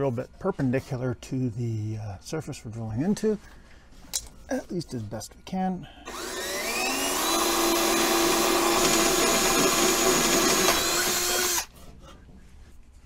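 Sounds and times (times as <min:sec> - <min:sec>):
cordless drill motor whine: 0:06.0 - 0:11.7.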